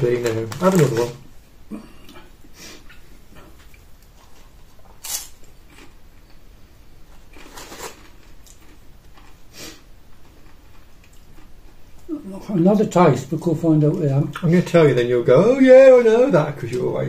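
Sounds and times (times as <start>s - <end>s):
crisp packet crinkling: 0.0s - 1.2s, 7.3s - 9.4s
crisps crunching: 0.0s - 1.3s, 3.6s - 6.4s, 7.1s - 9.4s.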